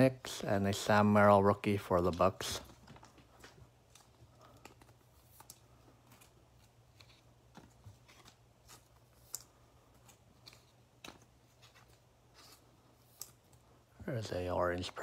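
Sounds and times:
trading cards clicking and sliding: 2.0s - 13.7s.

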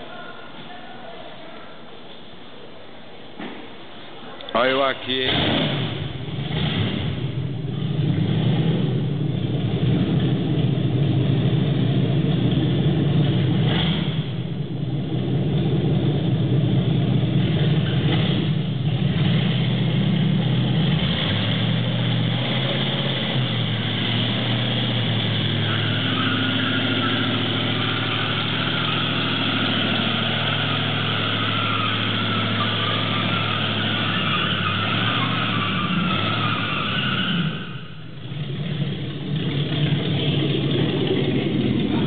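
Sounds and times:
engine idling: 38.0s - 42.0s.

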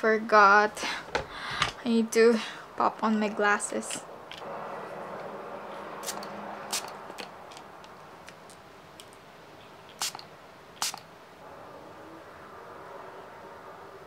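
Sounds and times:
spray bottle spritzes: 6.0s - 7.0s, 9.9s - 11.1s.

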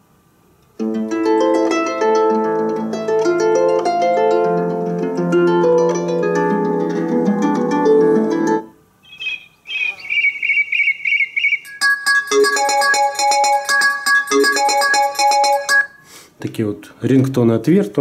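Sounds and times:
plucked harp-like ringtone melody: 0.8s - 8.7s, 11.4s - 16.0s
birdsong ringtone chirps: 9.0s - 16.1s.

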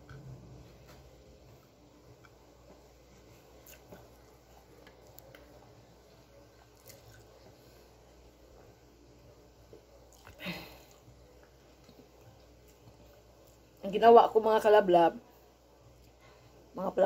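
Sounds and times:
person chewing: 3.5s - 5.5s, 6.6s - 7.5s, 10.1s - 11.0s.

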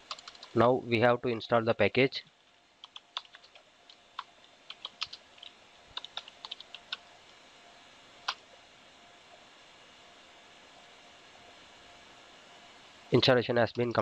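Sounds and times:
keyboard typing: 0.0s - 0.6s, 2.8s - 7.1s.

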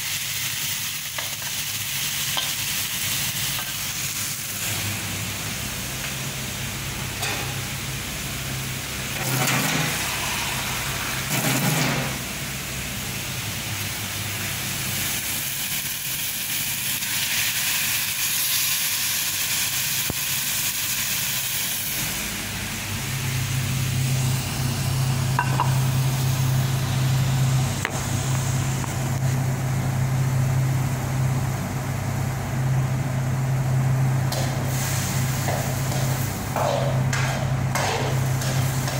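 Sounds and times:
vegetables sizzling in a pan: 0.0s - 5.6s, 14.3s - 22.2s, 34.4s - 37.0s, 37.8s - 38.9s
steady low hum: 20.6s - 38.9s.

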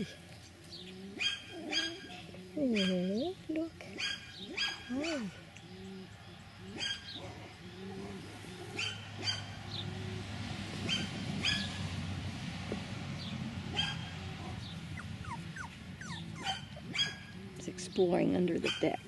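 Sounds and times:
puppy whines: 0.9s - 3.2s, 3.9s - 6.1s, 15.0s - 17.4s
puppies yipping and whimpering: 1.0s - 3.1s, 3.9s - 6.1s, 6.7s - 9.6s, 10.8s - 11.8s, 14.9s - 17.6s, 18.6s - 19.0s.

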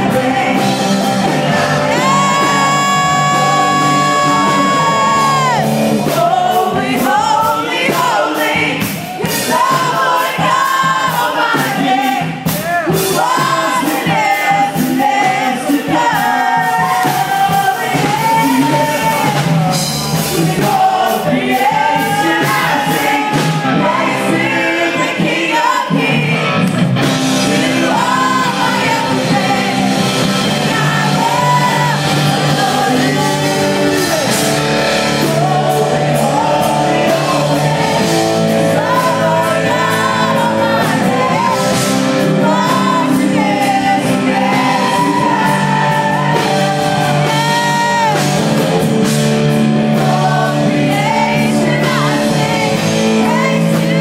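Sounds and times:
person singing into microphone: 0.0s - 19.4s, 27.3s - 48.8s
drum kit: 0.0s - 54.0s
live worship band playing: 0.0s - 54.0s.

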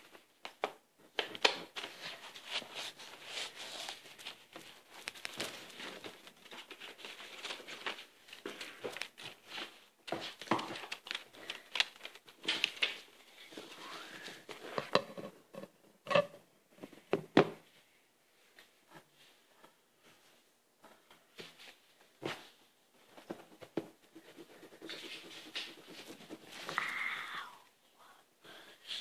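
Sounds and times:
paper rustling: 0.0s - 15.0s
pencil scratching on paper: 24.1s - 26.8s.

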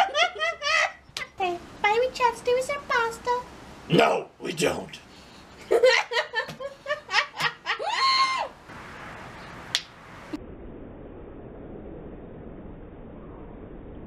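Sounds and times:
group laughing: 0.0s - 1.0s, 5.6s - 8.3s
low steady hiss: 0.0s - 10.4s
person whooping: 7.7s - 8.6s.

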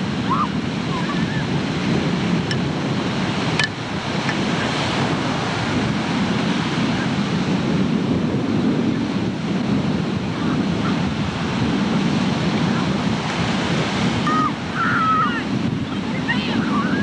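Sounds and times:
ocean surf breaking: 0.0s - 17.0s
wind on microphone: 0.0s - 17.0s.

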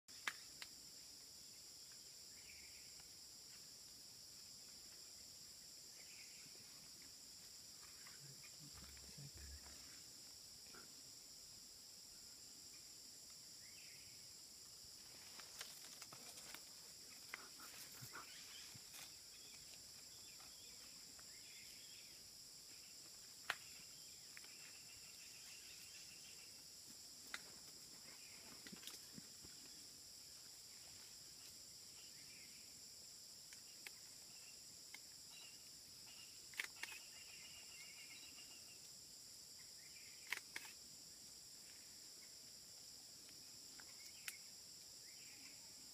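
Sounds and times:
sharp clicks: 36.5s - 37.1s, 40.2s - 40.8s.

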